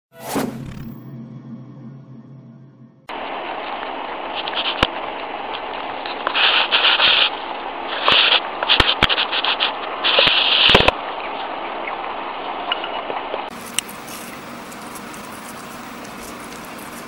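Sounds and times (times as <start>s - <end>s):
steady hiss: 3.1s - 10.9s, 13.5s - 17.0s
rabbit chewing crunchily: 3.8s - 10.9s, 13.5s - 17.0s.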